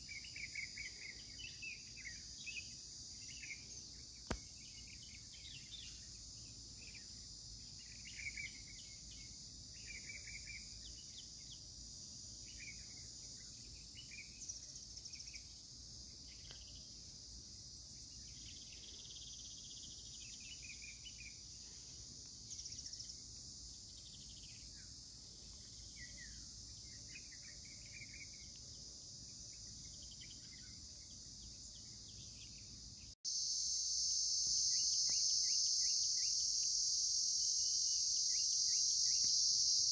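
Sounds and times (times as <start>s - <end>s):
bird chirps: 0.0s - 11.6s, 37.8s - 39.9s
insects chorus: 0.0s - 39.9s.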